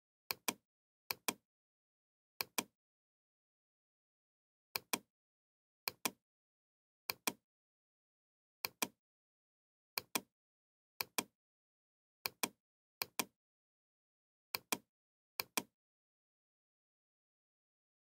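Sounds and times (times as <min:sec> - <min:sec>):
computer mouse button clicks: 0:08.6 - 0:09.0.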